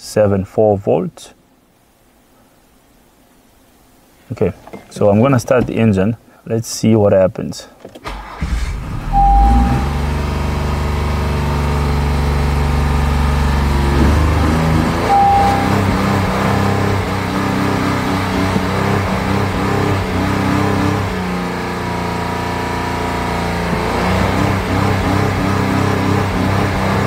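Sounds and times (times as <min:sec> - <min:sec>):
short beep: 0:09.1 - 0:10.1, 0:15.0 - 0:16.4.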